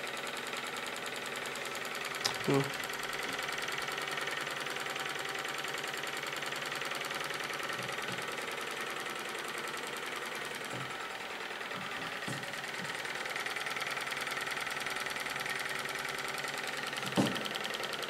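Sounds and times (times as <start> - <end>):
stirling engine clattering: 5.5 - 17.8.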